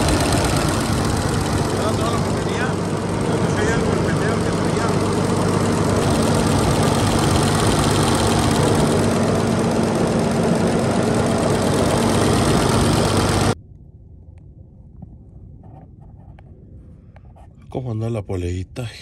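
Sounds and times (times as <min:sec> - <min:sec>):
diesel engine running: 0:00.0 - 0:13.6.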